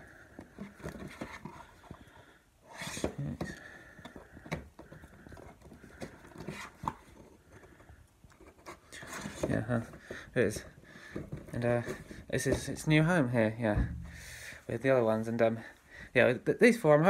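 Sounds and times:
plastic cases clicking and sliding: 0:00.2 - 0:02.1, 0:02.7 - 0:12.8.

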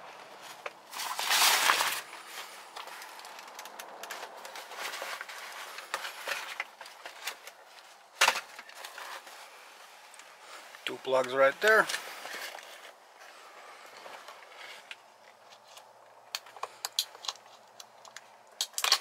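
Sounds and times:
airbag fabric rustling and crinkling: 0:00.0 - 0:16.2.

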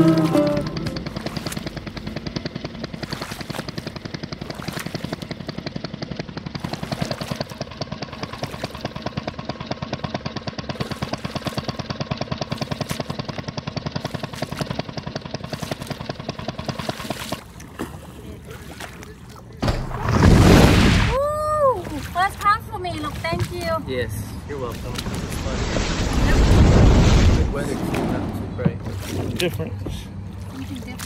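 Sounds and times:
jet ski engine running: 0:00.0 - 0:20.0, 0:21.9 - 0:25.2.

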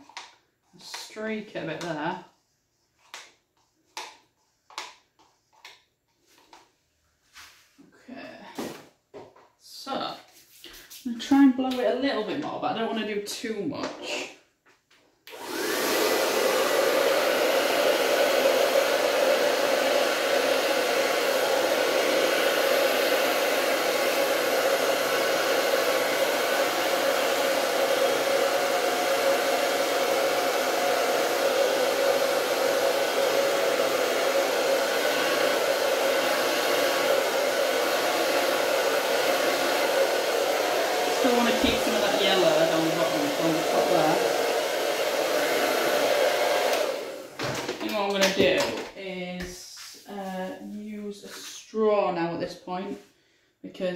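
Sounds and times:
hair dryer blowing: 0:00.0 - 0:02.2, 0:15.3 - 0:52.2.

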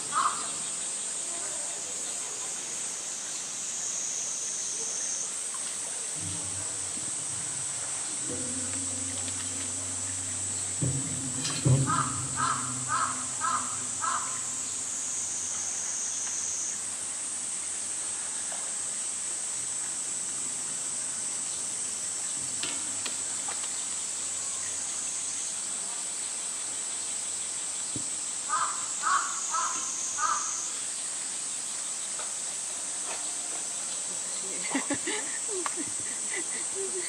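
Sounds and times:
high insect drone: 0:00.0 - 0:37.0
crow cawing: 0:00.1 - 0:00.5, 0:11.8 - 0:14.7, 0:28.5 - 0:30.6.

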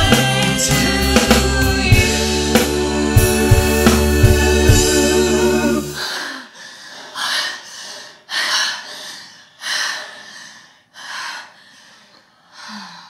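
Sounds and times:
people panting: 0:06.0 - 0:13.0.

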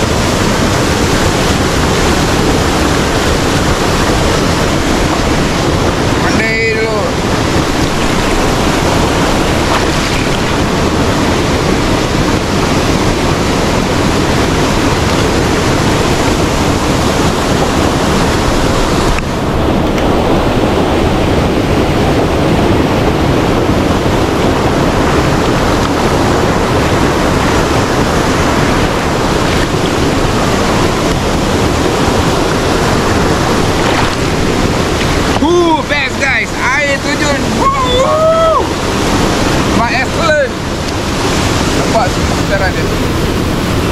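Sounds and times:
small waterfall rushing: 0:00.0 - 0:43.9
stream water swirling: 0:00.0 - 0:43.9.

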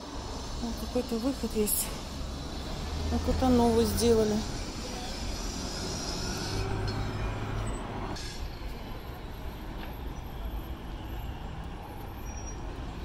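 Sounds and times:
vehicle engines running: 0:00.0 - 0:13.0.

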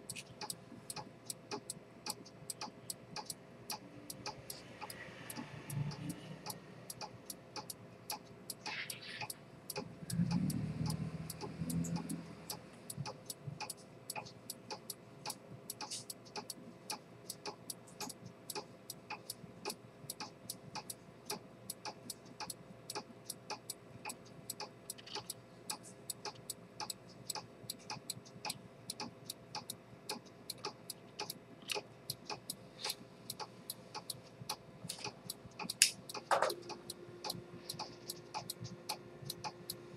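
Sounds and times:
pocket watch ticking: 0:00.0 - 0:39.8.

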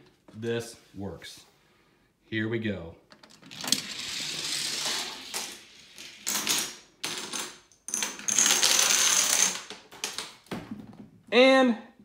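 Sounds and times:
toy car rolling on plastic track: 0:03.4 - 0:06.5, 0:08.2 - 0:10.2
dominoes clattering: 0:03.4 - 0:10.4.

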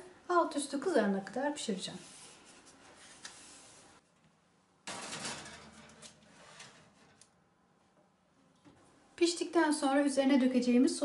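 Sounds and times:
baking tray scraping on oven rack: 0:04.9 - 0:07.2.

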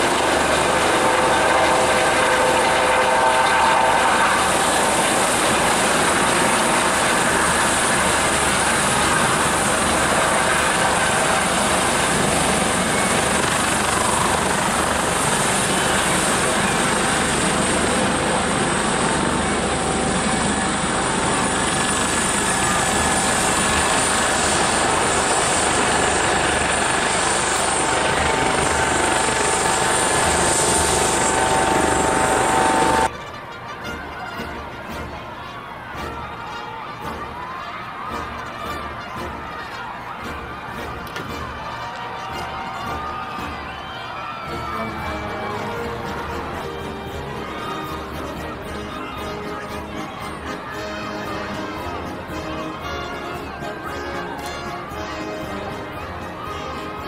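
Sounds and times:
helicopter rotor and engine: 0:00.0 - 0:33.1
high turbine whine: 0:00.0 - 0:33.1.

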